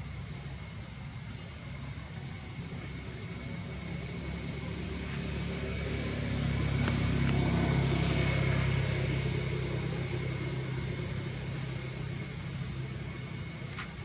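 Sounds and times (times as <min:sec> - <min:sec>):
vehicle engine passing by: 0:03.5 - 0:14.0.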